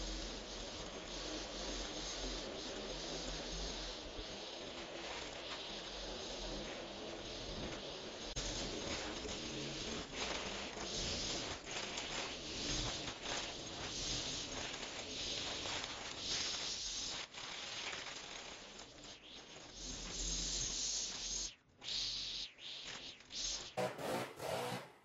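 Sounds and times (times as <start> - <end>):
string trimmer cutting grass: 23.8 - 25.0.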